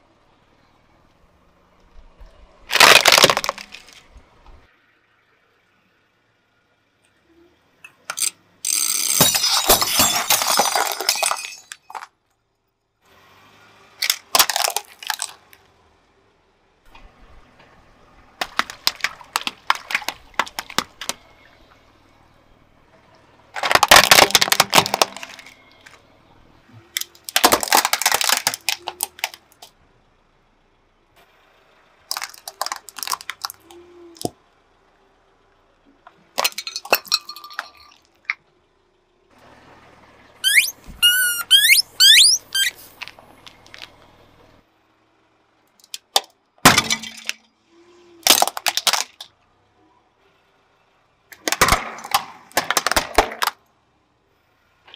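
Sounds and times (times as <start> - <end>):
crunching and squashing: 2.7 - 4.2, 14.0 - 15.6, 18.4 - 21.3, 23.6 - 26.0, 26.8 - 29.4, 32.1 - 34.3, 48.2 - 49.3
glass flasks cracking and shattering: 8.7 - 12.0, 36.4 - 38.1.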